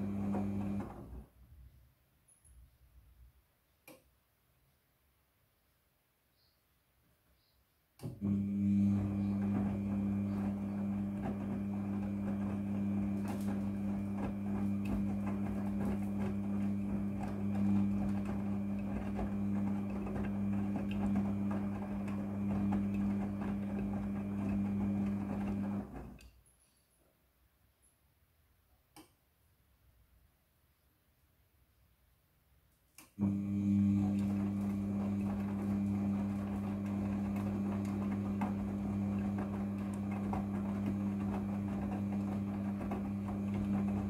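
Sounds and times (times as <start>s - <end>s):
washing machine drum turning: 0.0s - 1.2s, 8.2s - 26.2s, 33.2s - 44.0s.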